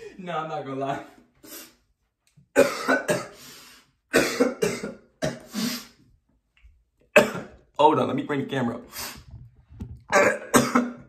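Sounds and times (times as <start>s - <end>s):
man coughing hard: 2.6s - 3.4s, 4.1s - 5.5s, 7.2s - 7.6s, 10.1s - 11.0s.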